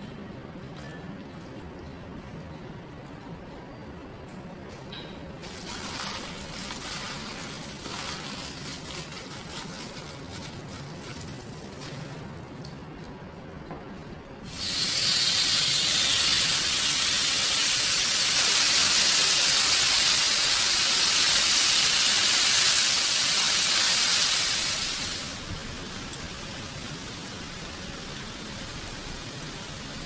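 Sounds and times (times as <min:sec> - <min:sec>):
meat sizzling on a grill pan: 0:14.5 - 0:30.0.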